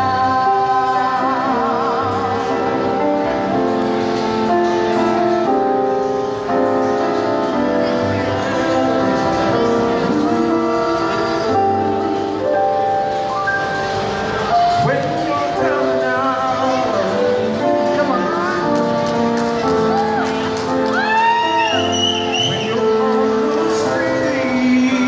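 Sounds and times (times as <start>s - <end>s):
vocal ensemble singing in harmony: 0.0s - 4.1s, 7.9s - 13.3s, 22.3s - 25.0s
stage keyboard: 0.0s - 25.0s.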